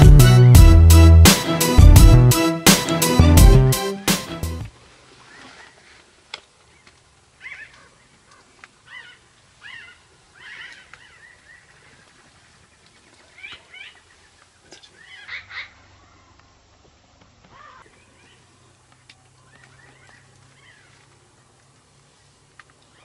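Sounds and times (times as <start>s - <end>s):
wild birds chirping: 6.7s - 16.6s, 17.4s - 23.0s.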